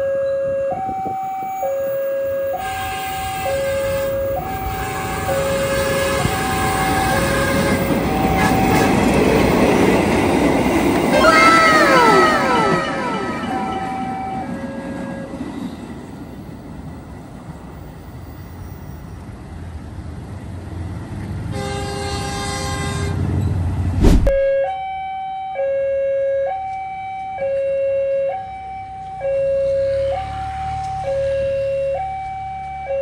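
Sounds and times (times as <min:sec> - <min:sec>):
level-crossing warning alarm: 0:00.0 - 0:09.9, 0:11.2 - 0:15.6, 0:24.5 - 0:33.0
traffic noise: 0:00.0 - 0:25.0, 0:26.5 - 0:33.0
rumbling train: 0:00.8 - 0:24.5
horn sounding: 0:02.5 - 0:09.0, 0:11.1 - 0:15.2.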